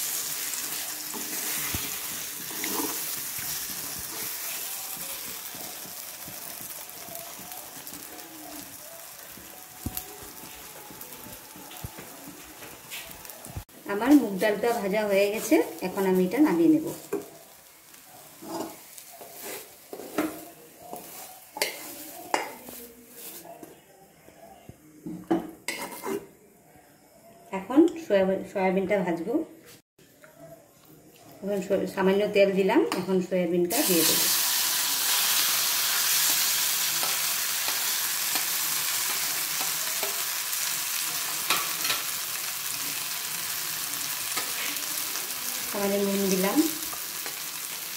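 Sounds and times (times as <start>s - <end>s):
faint sizzle: 0.0s - 27.9s, 29.6s - 47.9s
metal spatula scraping and clanking: 1.1s - 4.6s, 18.3s - 23.4s, 25.7s - 26.3s.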